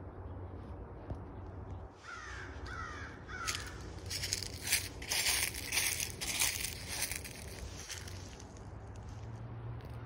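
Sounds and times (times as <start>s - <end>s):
crow cawing: 2.0s - 4.8s
footsteps crunching dry leaves: 2.0s - 9.3s.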